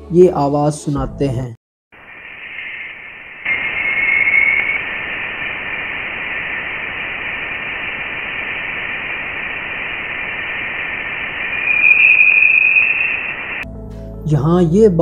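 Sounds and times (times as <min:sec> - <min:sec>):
electronic tones: 0:02.0 - 0:13.6
steady hiss: 0:02.0 - 0:13.6.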